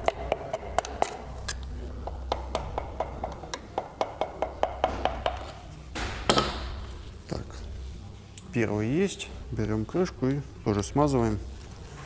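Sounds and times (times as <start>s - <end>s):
hammer handle tapping metal: 2.0s - 5.5s.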